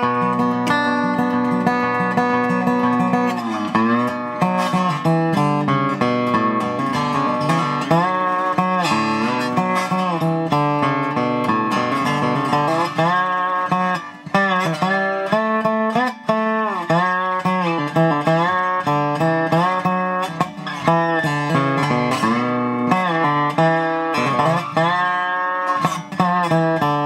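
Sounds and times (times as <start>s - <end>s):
slide resonator guitar playing: 0.0s - 27.0s.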